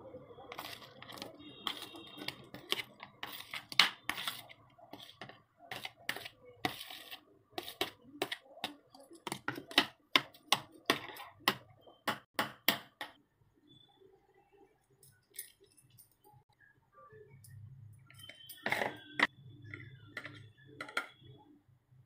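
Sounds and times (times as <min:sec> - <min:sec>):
utensil tapping plastic dishes: 0:18.6 - 0:21.2.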